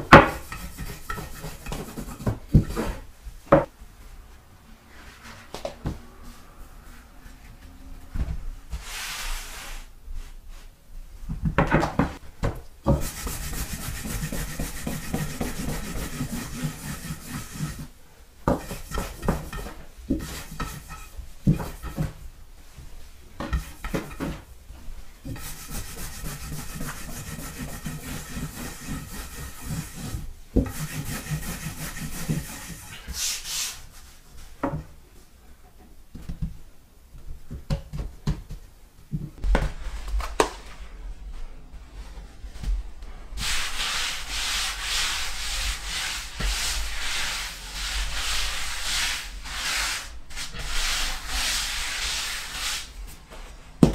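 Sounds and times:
rolling pin swishing over dough: 0:00.1 - 0:03.1, 0:08.7 - 0:10.8, 0:12.9 - 0:24.5, 0:25.2 - 0:34.6, 0:41.3 - 0:53.5.

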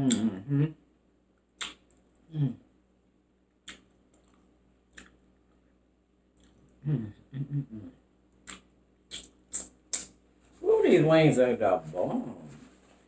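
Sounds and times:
person humming: 0:00.0 - 0:00.8, 0:02.3 - 0:02.6, 0:06.8 - 0:08.0.

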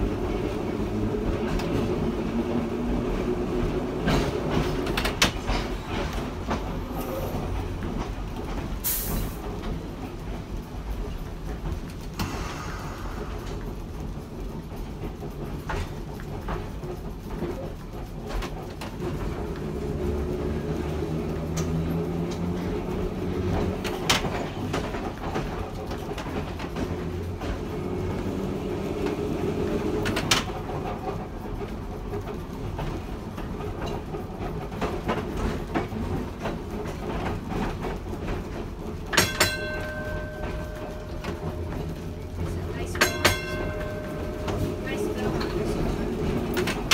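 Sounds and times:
streetcar motor hum: 0:00.0 - 0:46.9
wheels clicking over rail joints: 0:00.0 - 0:46.9
metal clanks: 0:36.9 - 0:46.9.

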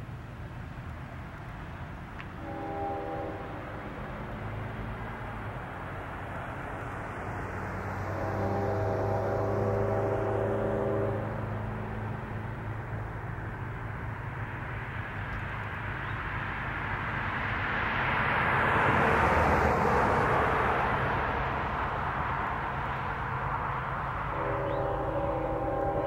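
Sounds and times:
car passing: 0:00.0 - 0:26.0
distant locomotive horn: 0:02.2 - 0:04.7, 0:07.7 - 0:12.4, 0:23.2 - 0:26.0.

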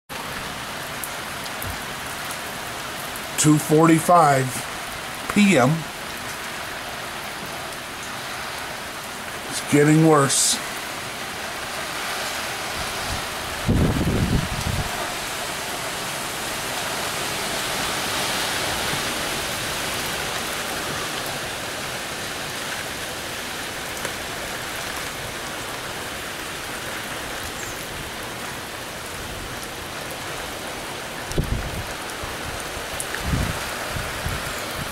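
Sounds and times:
wind through trees: 0:00.1 - 0:34.9
wind-driven rain: 0:00.1 - 0:34.9
wind buffeting microphone: 0:12.6 - 0:15.2, 0:31.3 - 0:34.9.

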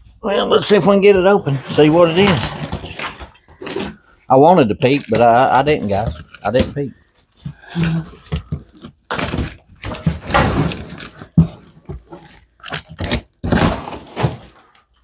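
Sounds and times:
cardboard tearing: 0:01.5 - 0:04.0, 0:04.8 - 0:06.8, 0:07.8 - 0:14.8.

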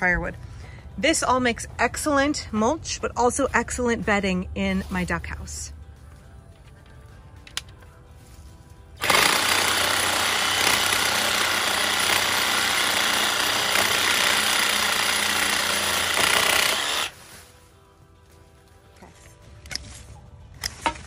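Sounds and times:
reciprocating saw cutting wood: 0:09.0 - 0:17.2.

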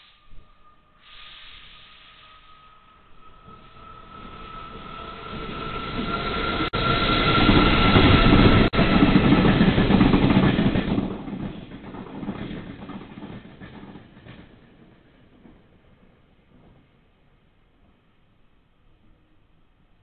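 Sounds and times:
train passing: 0:00.0 - 0:20.0
wheel clicks at rail joints: 0:08.0 - 0:16.8.

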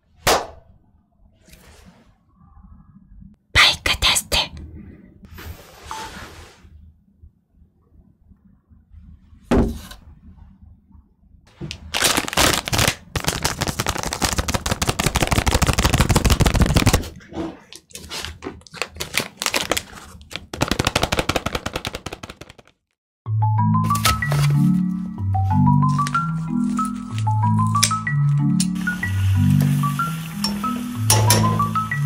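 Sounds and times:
plastic wrappers crinkling: 0:11.7 - 0:22.8, 0:25.8 - 0:27.8.

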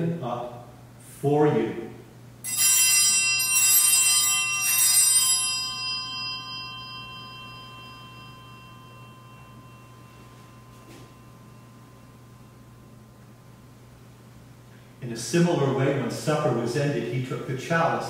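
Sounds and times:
altar bells ringing: 0:02.4 - 0:13.6.

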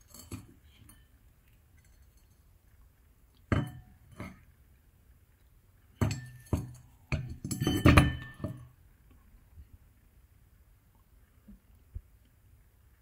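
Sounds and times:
metal parts clinking and knocking: 0:06.0 - 0:08.6.

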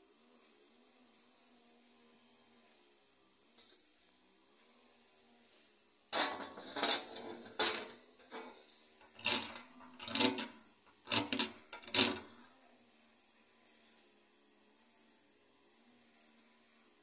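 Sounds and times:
stone rasping on rock: 0:09.1 - 0:12.4.

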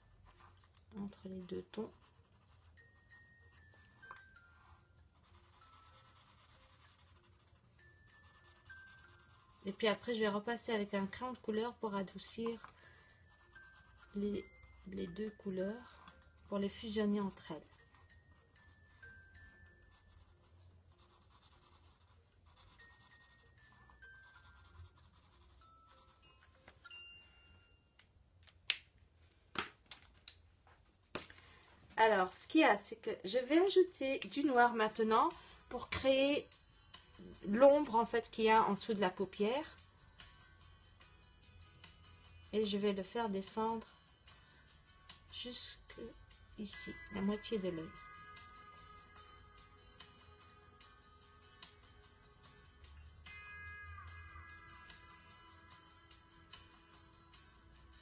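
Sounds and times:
marker rubbing on paper: 0:00.4 - 0:02.8, 0:04.8 - 0:07.6, 0:13.4 - 0:14.8, 0:19.9 - 0:23.5, 0:24.2 - 0:26.2
soft chiming tones: 0:01.8 - 0:20.8, 0:22.6 - 0:28.0, 0:46.6 - 0:56.4.

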